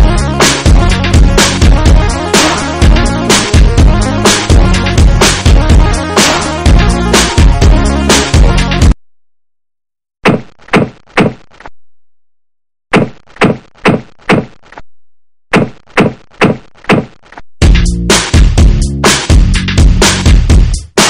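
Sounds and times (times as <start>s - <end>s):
electronic music: 0.0s - 9.0s
whacking thuds: 10.2s - 11.7s, 12.9s - 14.8s, 15.5s - 17.4s.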